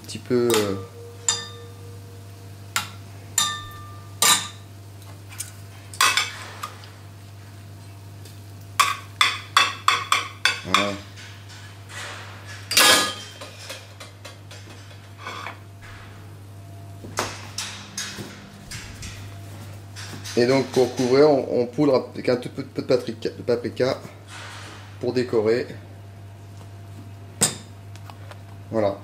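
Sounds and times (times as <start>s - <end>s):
utensils clinking against dishes: 0.0s - 4.7s, 8.8s - 15.6s, 17.2s - 21.6s
low hum: 0.0s - 8.0s, 14.5s - 20.4s.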